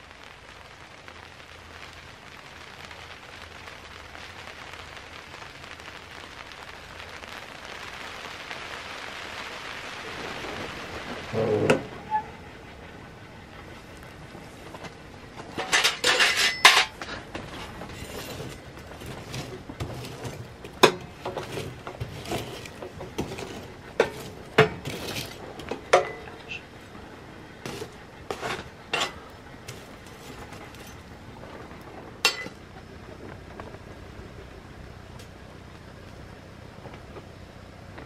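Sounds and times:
metal clinks and scrapes in stove: 15.4 - 26.5, 27.6 - 31.0, 32.2 - 32.6.

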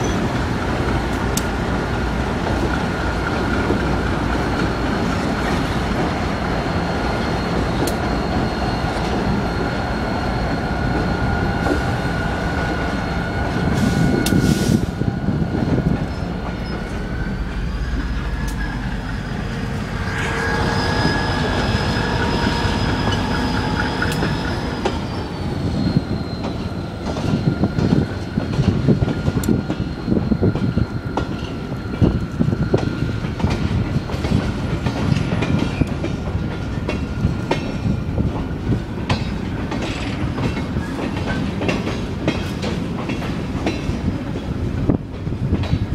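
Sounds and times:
clicks from train wheels: 0.0 - 6.2, 7.2 - 9.7, 12.6 - 14.8, 22.1 - 25.1, 26.0 - 45.9
freight train rumble: 0.0 - 45.9
high-pitched wheel squeal: 6.4 - 28.4.

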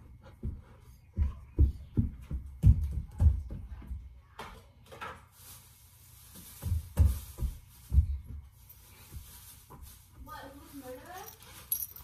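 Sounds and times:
child running on hardwood floor: 0.0 - 4.4, 6.6 - 9.8.

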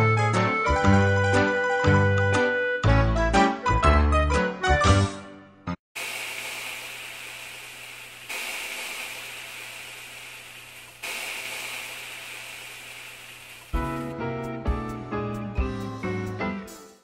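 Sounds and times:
low hum: 6.0 - 14.1.

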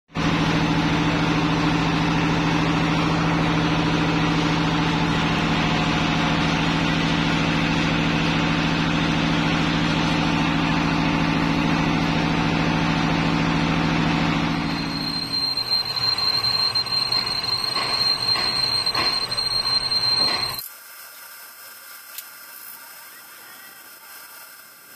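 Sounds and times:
lathe machine drone: 0.2 - 20.6
high-pitched machine whine: 0.2 - 24.9
lathe tool cutting steel: 13.7 - 20.6.

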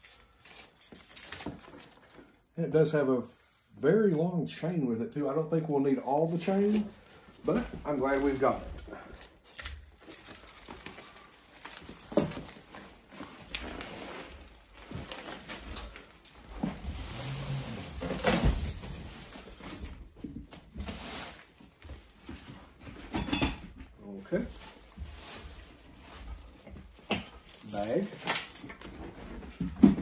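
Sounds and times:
metal hardware clinking: 9.5 - 12.6, 27.1 - 28.9
cardboard rustling and scraping: 12.3 - 19.5, 20.4 - 23.1, 24.6 - 27.0.

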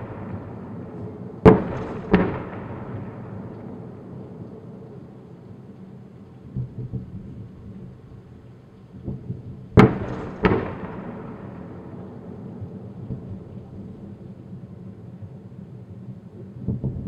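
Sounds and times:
distant artillery booms: 0.0 - 4.0, 9.0 - 12.2
loud blasts with rolling echo: 0.0 - 5.0, 9.7 - 13.5
low steady rumble: 0.0 - 17.0.

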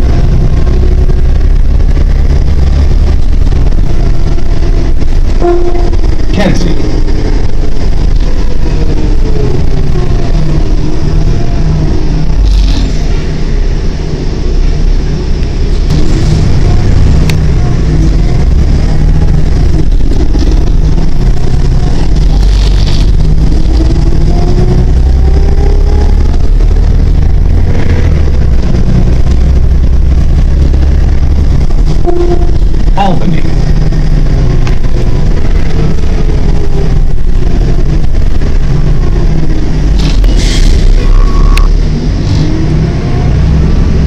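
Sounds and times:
bus engine rumble: 0.0 - 44.0
drivetrain whine: 0.0 - 44.0.

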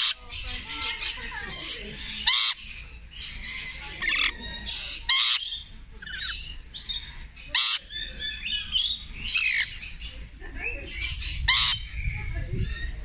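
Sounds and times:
lorikeet chirps and chatter: 0.0 - 13.0
lorikeet harsh screeches: 2.1 - 2.8, 3.4 - 7.9.

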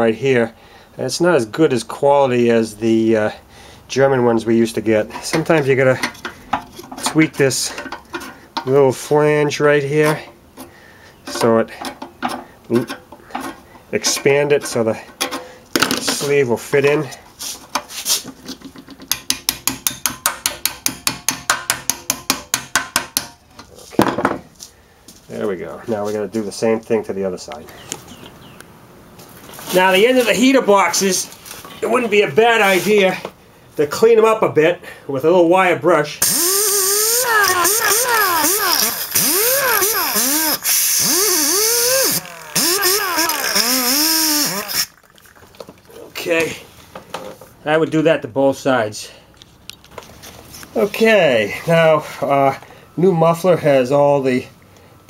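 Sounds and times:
hammer tapping on metal: 19.0 - 23.4
electric drill motor: 36.2 - 44.9.

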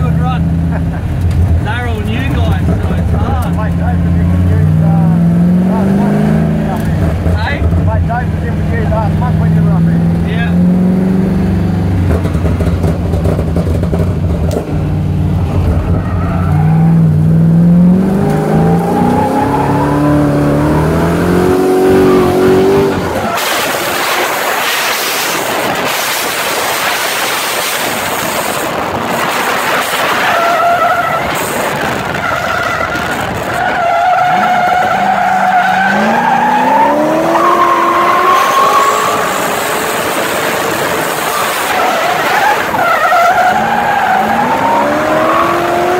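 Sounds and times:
car engine accelerating: 0.0 - 45.9
tyres skidding and squealing: 14.6 - 45.9.

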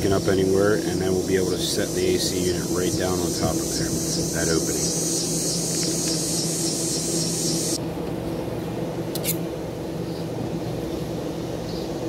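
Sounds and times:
high hiss: 1.0 - 7.8.

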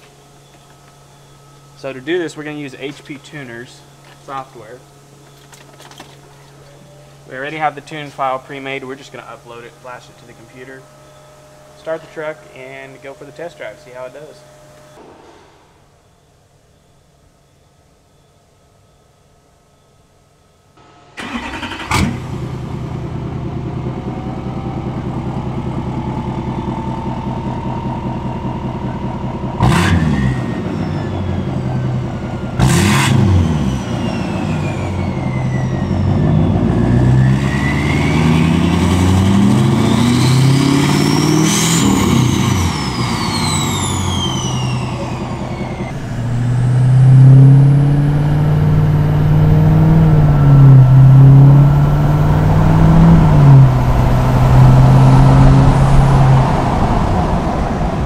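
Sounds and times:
turbocharger whine: 0.0 - 15.0, 20.8 - 58.0
diesel engine starting and revving: 21.2 - 58.0.

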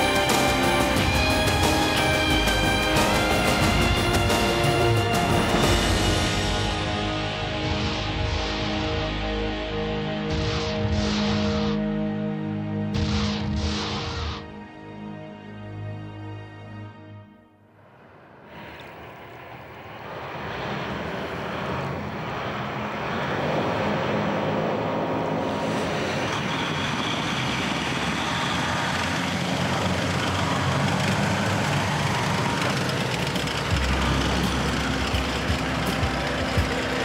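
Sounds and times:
vehicle engine running under load: 20.0 - 37.0
deep rumble: 29.6 - 37.0.

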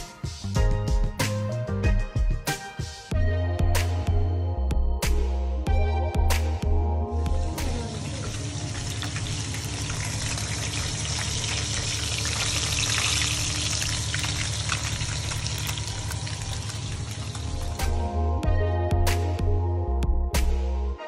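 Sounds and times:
fish sizzling in hot oil: 8.2 - 18.0.

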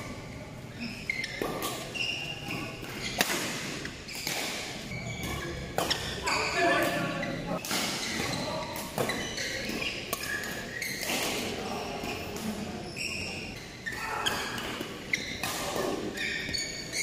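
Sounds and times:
shoes squeaking on court: 0.2 - 17.0
racket hitting shuttlecock: 1.2 - 7.0, 7.6 - 12.4, 14.2 - 17.0.

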